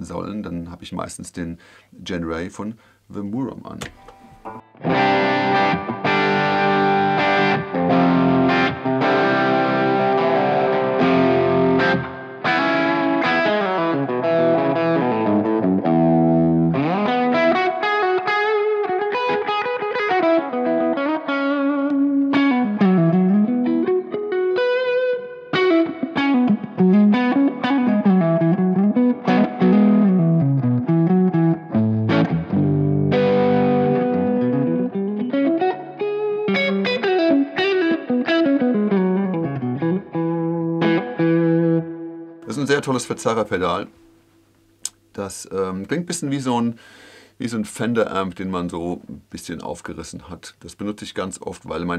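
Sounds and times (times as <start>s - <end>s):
overdriven electric guitar: 3.8s - 45.1s.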